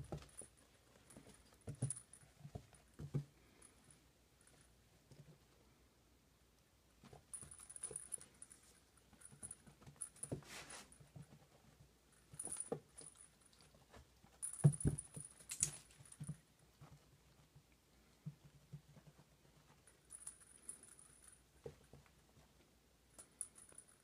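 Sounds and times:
ferret scuffling and pouncing: 0.0s - 3.4s, 7.0s - 17.6s.

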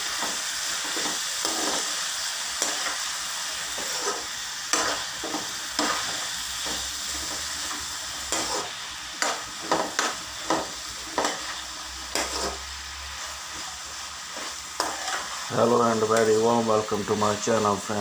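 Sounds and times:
vegetables sizzling in a pan: 0.0s - 18.0s
utensil scraping a pan: 3.7s - 12.7s, 14.3s - 16.4s.

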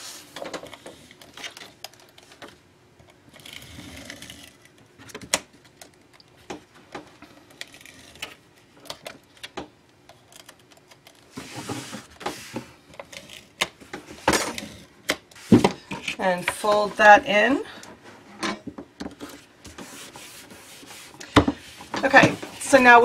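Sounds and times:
paper rubbing: 19.8s - 23.0s.

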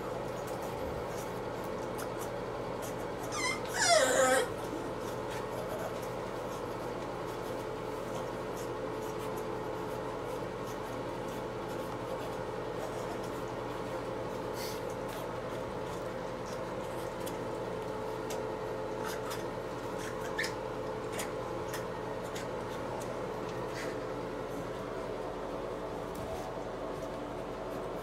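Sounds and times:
puppy whimpering: 2.8s - 6.1s, 18.9s - 22.4s.

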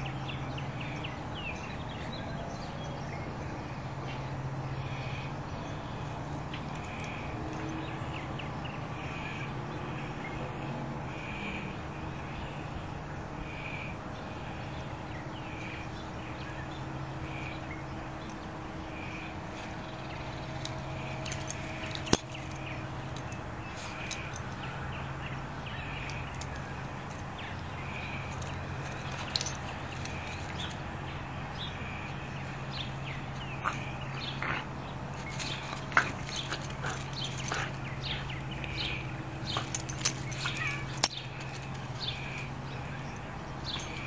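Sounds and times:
low outdoor hum: 0.0s - 44.0s
bird calling: 31.6s - 44.0s.

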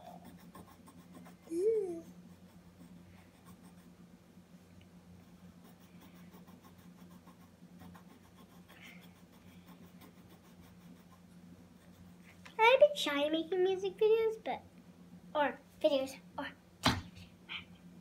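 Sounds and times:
marker scratching on paper: 0.0s - 1.5s, 5.6s - 12.2s
steady low hum: 0.0s - 18.0s.

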